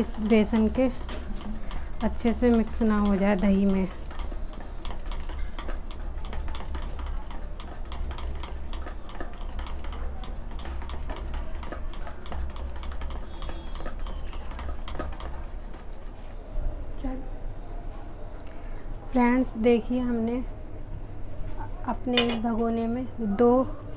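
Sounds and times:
utensil scraping metal bowl: 0:00.0 - 0:16.3.

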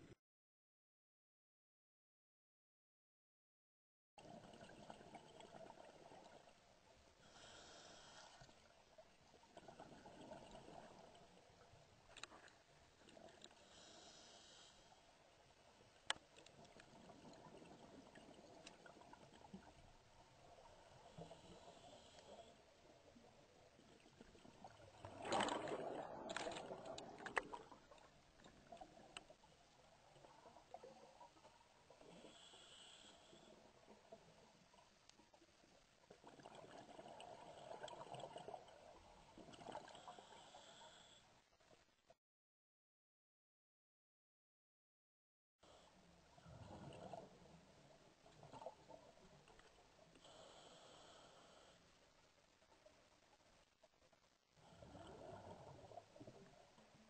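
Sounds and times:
diver breathing through regulator: 0:07.2 - 0:08.5, 0:13.6 - 0:15.1, 0:32.1 - 0:33.6, 0:50.2 - 0:51.9
diver exhaling bubbles underwater: 0:24.6 - 0:27.9.

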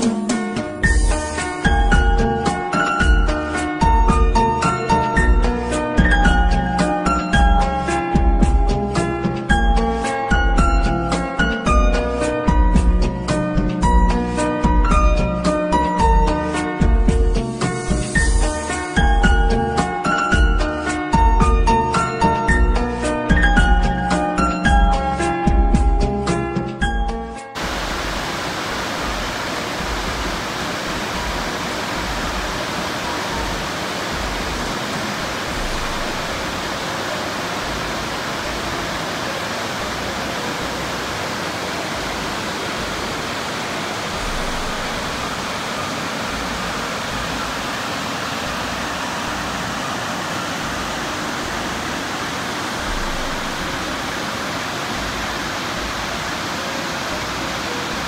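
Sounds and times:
waterfall rushing: 0:01.2 - 0:07.6, 0:27.6 - 0:58.0.

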